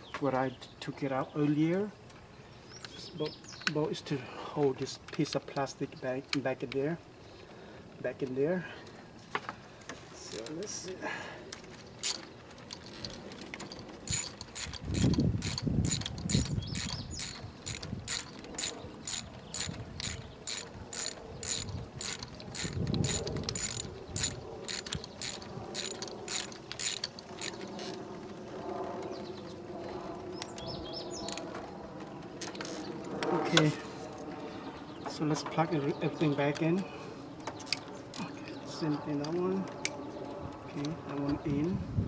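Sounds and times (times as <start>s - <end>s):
ratchet wrench clicking: 12.0s - 13.2s, 14.0s - 28.0s.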